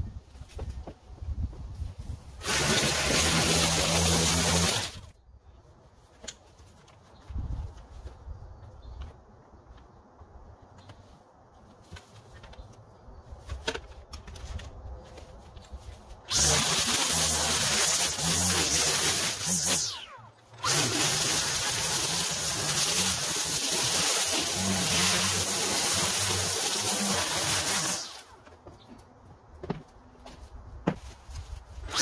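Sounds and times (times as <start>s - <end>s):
small gas engine running: 2.4s - 5.0s, 16.3s - 28.3s.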